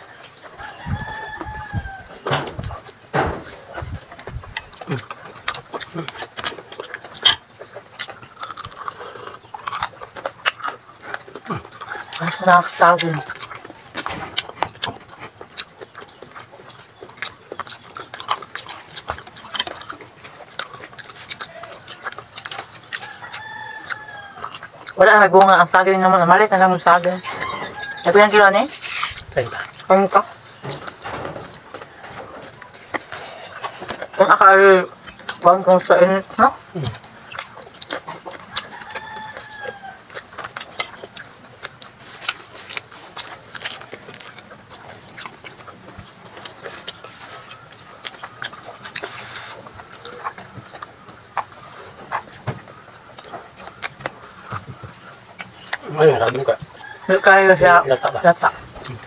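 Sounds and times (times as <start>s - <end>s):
chewing and lip-smacking: 0.0s - 59.0s
rooster crowing: 0.5s - 2.6s, 11.5s - 13.4s, 22.9s - 24.7s, 26.9s - 28.7s, 38.5s - 40.2s, 56.2s - 58.0s.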